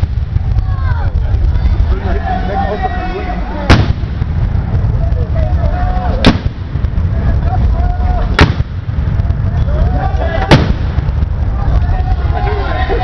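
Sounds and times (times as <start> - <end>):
low rumble: 0.0 - 13.0
faint voices: 0.1 - 13.0
gunshots: 3.6 - 4.4, 6.2 - 7.0, 8.2 - 9.0, 10.4 - 11.2.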